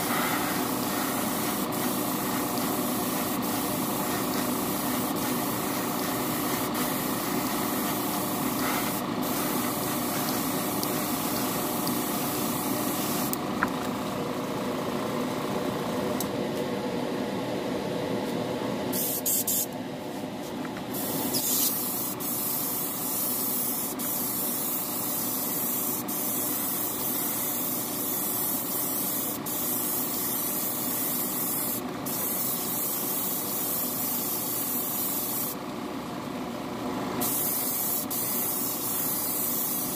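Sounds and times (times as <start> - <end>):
airbrush hissing: 0.0 - 13.4, 20.9 - 35.6, 37.2 - 39.9.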